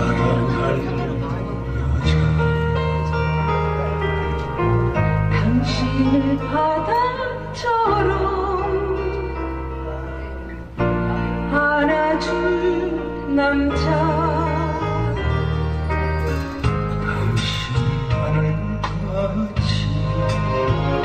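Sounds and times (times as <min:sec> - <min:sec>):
backing track with bass: 0:00.0 - 0:21.0
woman singing with vibrato: 0:05.4 - 0:09.1.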